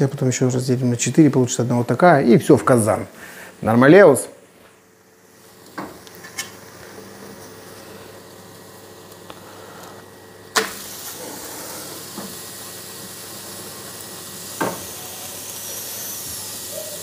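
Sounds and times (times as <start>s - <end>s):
steam hissing from cookware: 5.2s - 17.0s.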